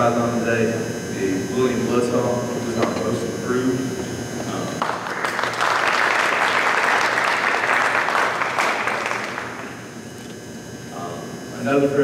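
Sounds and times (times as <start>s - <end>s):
audience applauding: 4.8s - 9.8s.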